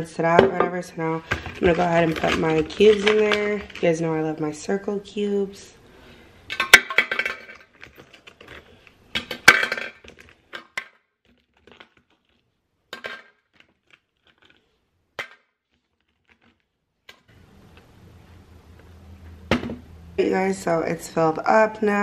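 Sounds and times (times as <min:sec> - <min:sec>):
ice cubes clattering in plastic bottle: 0:01.2 - 0:04.0, 0:06.5 - 0:17.3.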